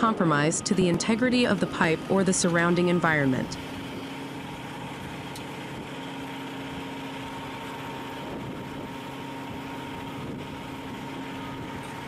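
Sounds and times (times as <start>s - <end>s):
excavator diesel engine idling: 0.0s - 12.0s.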